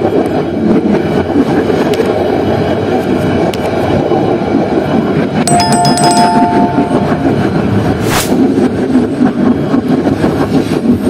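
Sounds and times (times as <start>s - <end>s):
train rumbling along track: 0.0s - 5.5s, 6.2s - 11.0s
two-note ringing chime: 5.5s - 7.8s.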